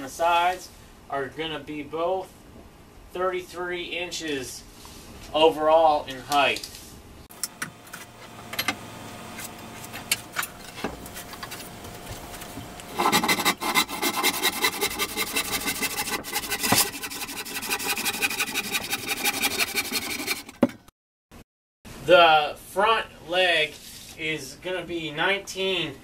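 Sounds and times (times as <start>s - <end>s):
scratching on wood: 11.0s - 20.7s
handsaw cutting wood: 12.9s - 20.7s.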